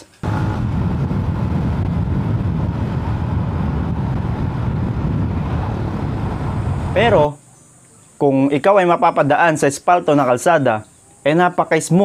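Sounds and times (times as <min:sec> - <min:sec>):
road noise: 0:00.0 - 0:08.2
wind noise: 0:00.2 - 0:07.4.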